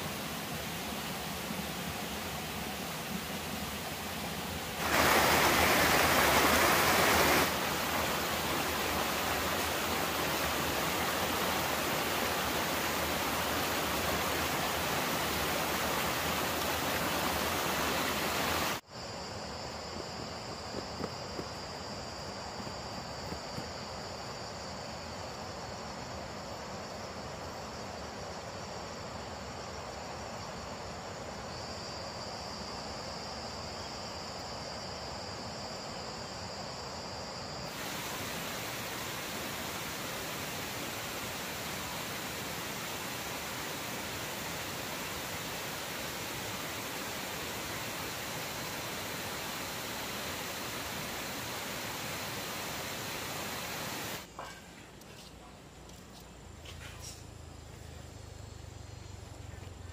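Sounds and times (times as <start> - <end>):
stream water rushing over rocks: 0.0 - 18.8, 37.7 - 54.3
insects chirring: 0.0 - 59.9.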